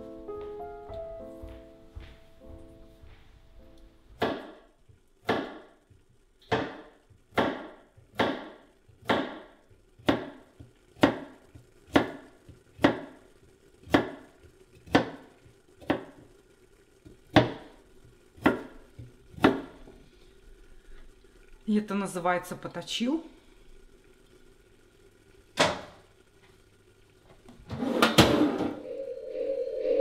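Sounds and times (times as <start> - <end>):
knife chopping on wooden board: 4.2 - 4.6, 5.3 - 5.7, 6.5 - 10.4, 12.8 - 13.1, 14.9 - 15.2, 17.3 - 17.6, 18.4 - 18.7.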